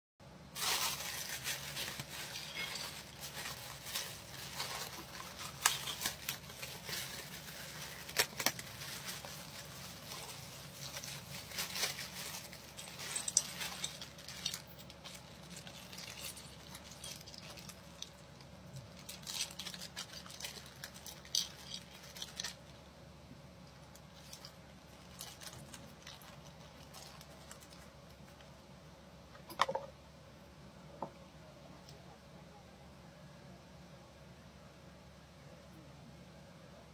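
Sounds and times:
plastic packaging crinkling: 0.5 - 22.8, 23.7 - 28.5.

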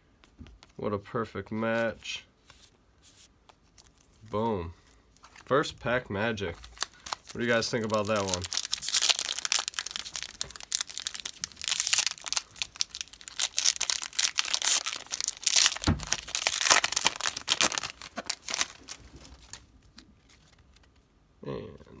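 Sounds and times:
foil wrapper crinkling: 6.6 - 20.9.

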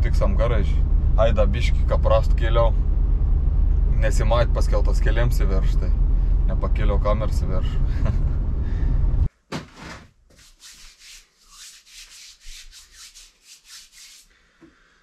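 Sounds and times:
car cabin engine and road noise: 0.0 - 9.3
hands rubbing together: 10.3 - 14.3.

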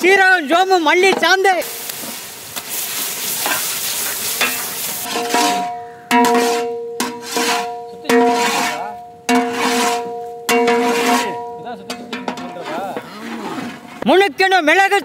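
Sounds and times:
ladle stirring and scraping pan: 1.1 - 14.1
meat sizzling in oil: 1.6 - 5.4.

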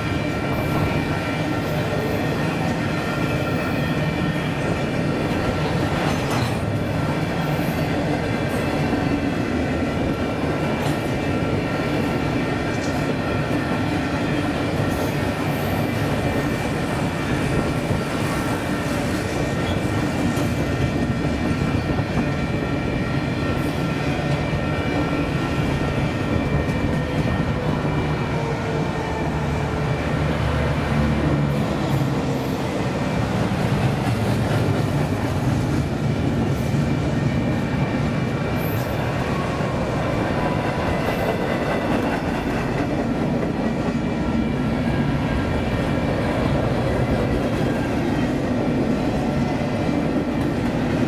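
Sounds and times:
train cars clanking: 0.0 - 27.8
train wheels rumbling on rail: 0.0 - 51.0.

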